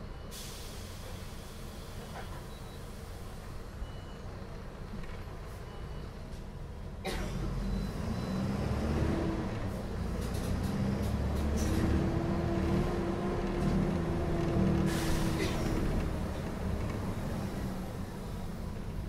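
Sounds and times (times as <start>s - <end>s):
bus diesel engine: 0.0s - 19.0s.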